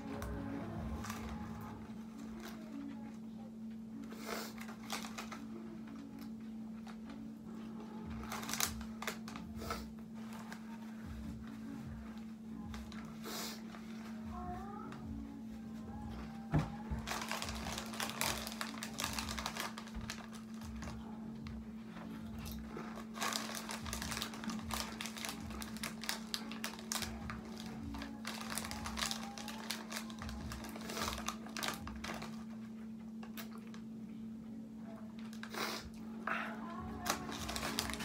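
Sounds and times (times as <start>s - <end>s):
foil chip bag crinkling: 0.0s - 3.1s, 4.2s - 10.9s, 16.9s - 33.8s, 36.3s - 38.0s
steady low hum: 0.0s - 38.0s.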